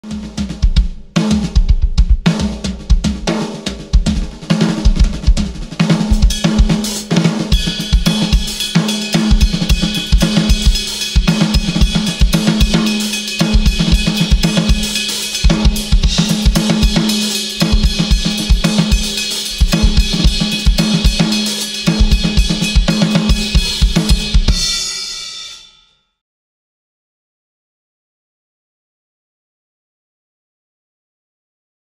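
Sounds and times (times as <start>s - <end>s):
snare and tom hits: 0.0s - 25.2s
bass drum strokes: 0.3s - 24.8s
cymbals ringing: 7.5s - 26.0s.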